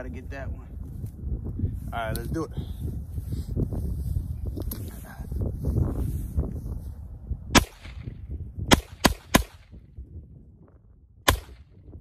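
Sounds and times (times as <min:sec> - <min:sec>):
pistol shots with echo: 0:08.7 - 0:09.7.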